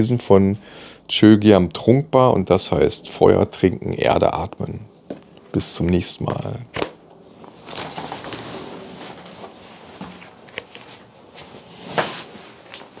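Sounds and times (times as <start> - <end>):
rustling: 7.3 - 13.0.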